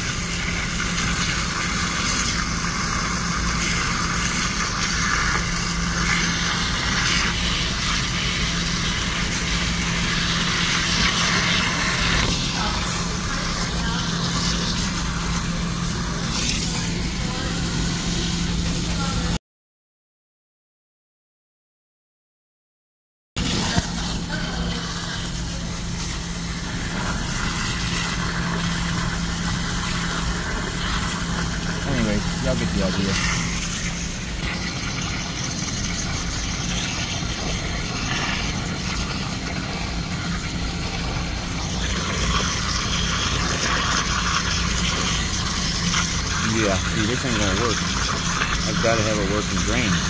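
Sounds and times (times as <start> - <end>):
water spraying and splashing: 0.0 - 19.4, 23.4 - 50.0
steady low hum: 23.4 - 50.0.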